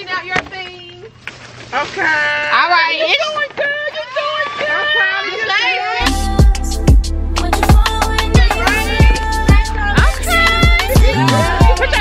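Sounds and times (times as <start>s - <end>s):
hip-hop beat with deep bass: 6.0s - 12.0s.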